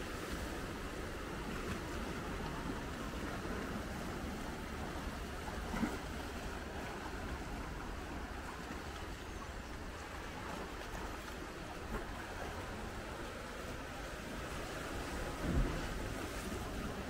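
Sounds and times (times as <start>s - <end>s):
low water rumble: 0.0s - 17.0s
small waves lapping on rock: 0.0s - 17.0s.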